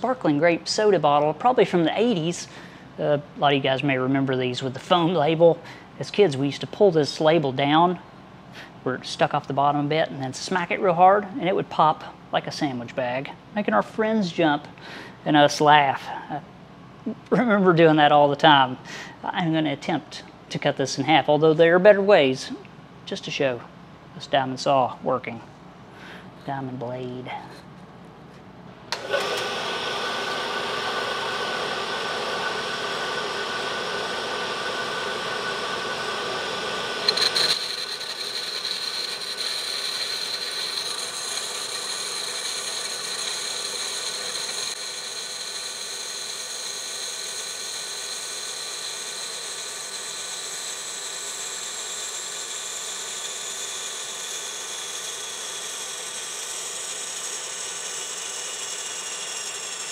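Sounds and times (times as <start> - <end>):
steady high whine: 28.9 - 59.9
bandsaw cutting glass bottle: 31.0 - 59.9.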